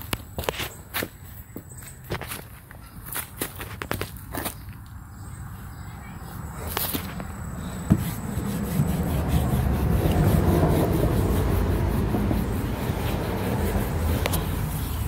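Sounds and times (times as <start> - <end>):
sanding block rubbing fabric: 7.9 - 15.0.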